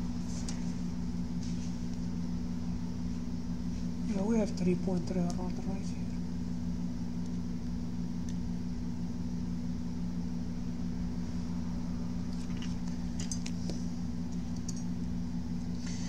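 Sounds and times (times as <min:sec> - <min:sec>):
bench equipment humming: 0:00.0 - 0:16.0
small tools clicking and rattling: 0:14.5 - 0:14.9.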